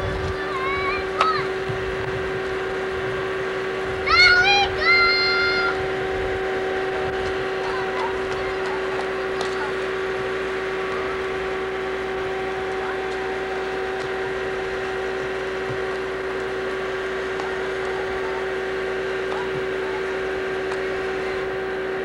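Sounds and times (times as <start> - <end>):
steady mid-pitched hum: 0.0 - 22.0.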